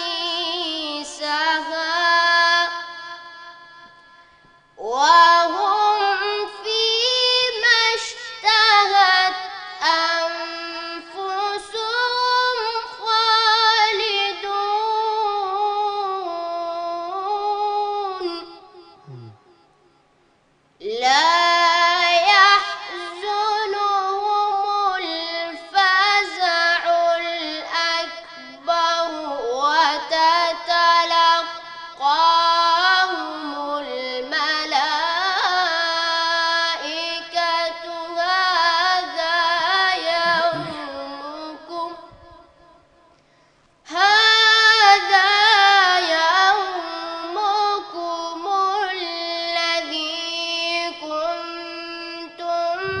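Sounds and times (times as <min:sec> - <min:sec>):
boy chanting melodically: 0:00.0 - 0:04.2, 0:04.8 - 0:19.5, 0:20.8 - 0:42.6, 0:43.9 - 0:53.0.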